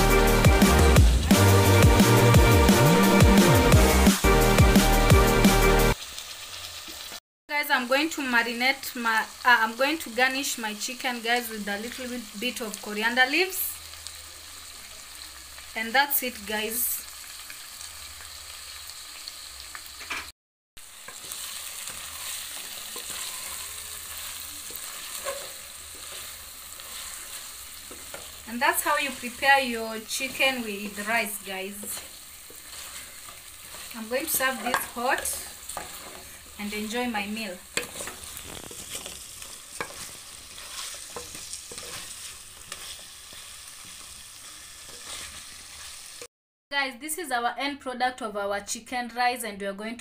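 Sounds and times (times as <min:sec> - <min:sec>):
chicken sizzling in a metal pot: 0:00.0 - 0:46.3
wooden spoon scraping a pot: 0:21.1 - 0:28.4, 0:30.1 - 0:46.1.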